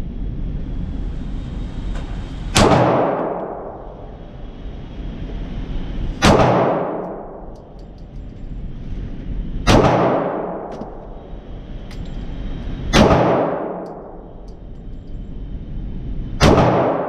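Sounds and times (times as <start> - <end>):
echo off concrete walls: 0.0 - 17.0
pistol shots: 6.2 - 7.0, 9.7 - 10.7, 12.9 - 13.8, 16.4 - 17.0.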